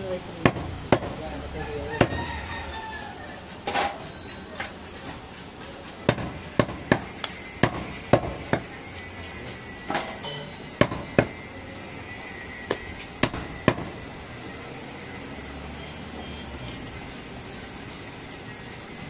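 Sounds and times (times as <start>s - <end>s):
cleaver chopping meat on wood block: 0.4s - 1.2s, 2.0s - 2.3s, 6.1s - 8.7s, 10.8s - 11.4s, 12.7s - 14.0s.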